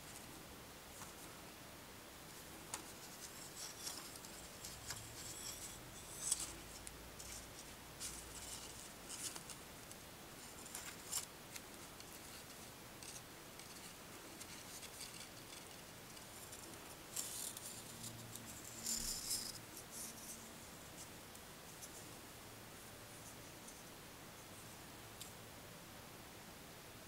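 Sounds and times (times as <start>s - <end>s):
palm leaf crackling and rustling: 2.3s - 20.5s.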